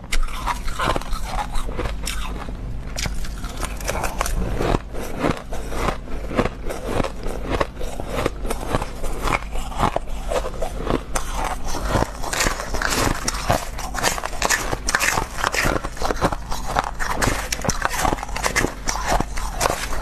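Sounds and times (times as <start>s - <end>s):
chewing crunchy ice: 0.0s - 20.0s
metal spoon scraping ice: 7.8s - 20.0s.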